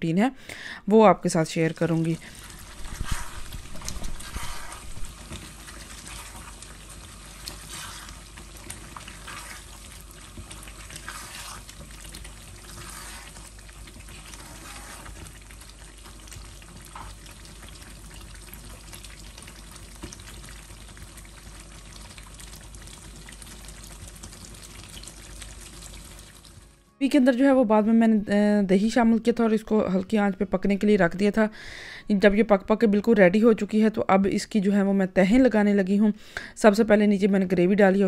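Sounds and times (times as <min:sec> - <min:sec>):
gravy sizzling in a pan: 0:01.7 - 0:26.8.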